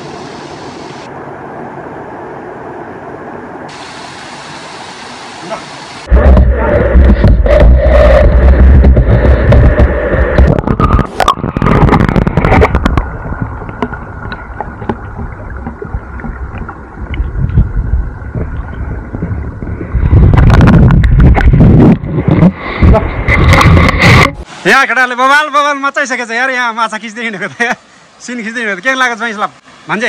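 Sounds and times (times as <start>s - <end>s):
water splashing and sloshing: 3.6s - 24.7s
muffled underwater rumble and gurgle: 6.1s - 24.4s.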